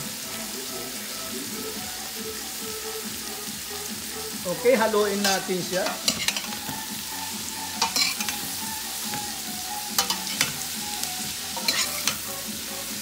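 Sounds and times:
vegetables sizzling in butter: 0.0s - 13.0s
metal spoon scraping a pot: 5.2s - 6.7s, 7.8s - 8.5s, 10.0s - 10.6s, 11.6s - 12.3s.

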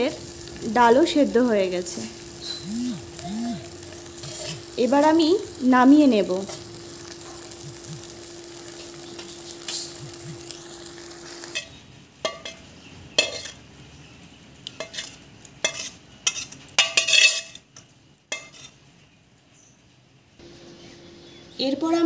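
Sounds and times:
steady hum: 0.0s - 11.6s
dal bubbling in a wok: 0.0s - 18.8s
spatula scraping a wok: 3.9s - 4.8s, 8.6s - 10.0s, 10.6s - 13.6s, 14.8s - 18.8s.

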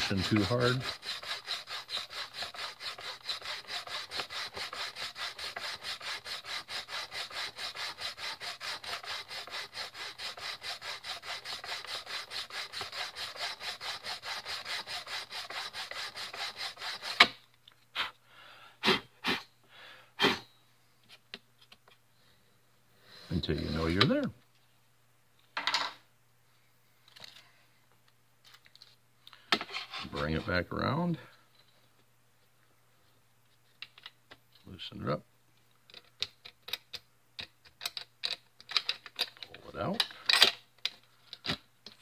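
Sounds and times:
sanding block rubbing: 0.0s - 17.3s.

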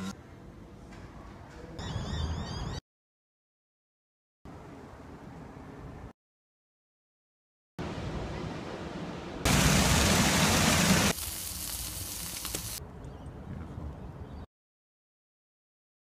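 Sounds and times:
fountain jets splashing on pavement: 9.5s - 12.8s.

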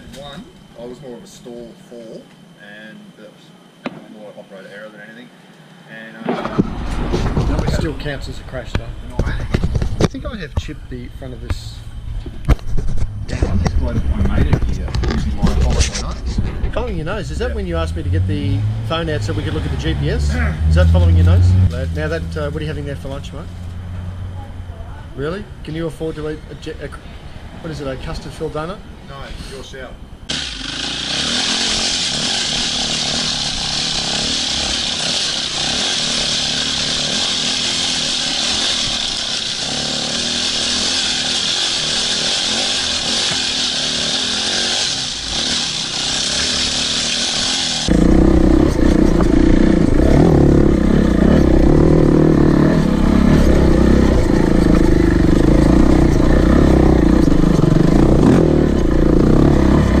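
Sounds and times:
motorcycle engine running: 6.4s - 25.2s, 30.3s - 60.0s
deep single-cylinder engine note: 13.2s - 25.6s, 30.2s - 60.0s.

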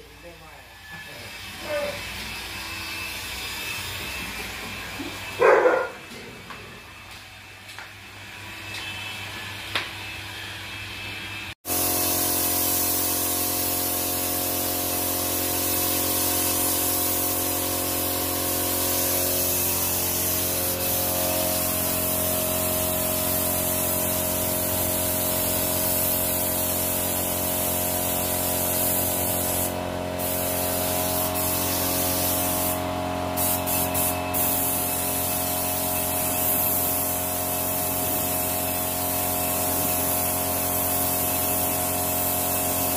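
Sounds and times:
spray gun hissing: 11.6s - 42.9s.

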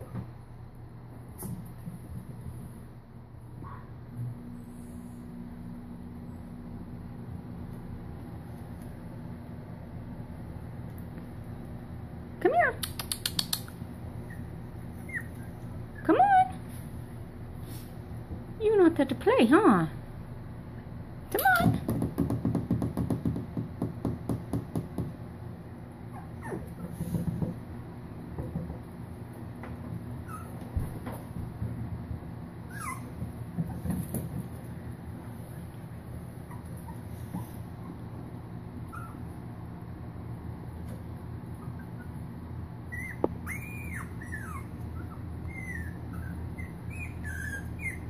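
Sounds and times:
steady low hum: 0.0s - 48.0s
puppy claws clicking on wood floor: 12.8s - 13.8s
puppy whimpering: 14.2s - 16.6s, 26.1s - 27.0s, 30.2s - 30.7s, 32.7s - 33.8s, 38.8s - 39.4s, 42.9s - 48.0s.

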